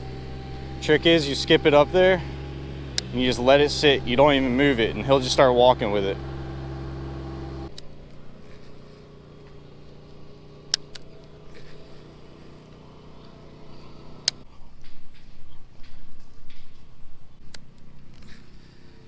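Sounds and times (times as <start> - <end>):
motor humming: 0.0 - 14.4
sharp clicks: 2.9 - 3.1.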